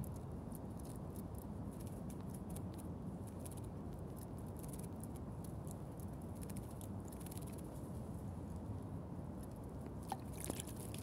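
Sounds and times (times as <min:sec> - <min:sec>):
low background rumble: 0:00.0 - 0:11.0
bird splashing in water: 0:10.0 - 0:11.0.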